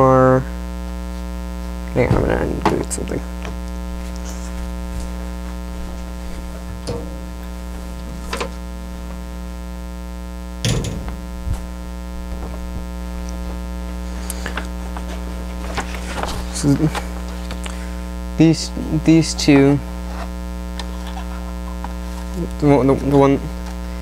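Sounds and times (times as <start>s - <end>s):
electrical mains hum: 0.0s - 24.0s
paper rustling: 3.9s - 8.6s, 12.3s - 17.9s, 20.0s - 22.3s.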